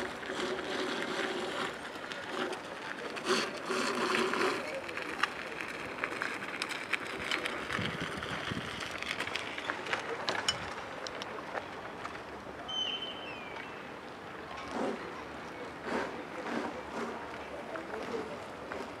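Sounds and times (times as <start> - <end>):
short high whistle: 12.7 - 13.6.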